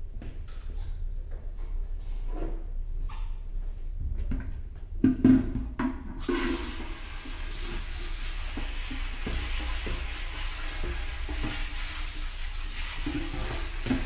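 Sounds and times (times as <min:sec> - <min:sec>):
hose water spraying into metal tank: 0:06.2 - 0:14.0.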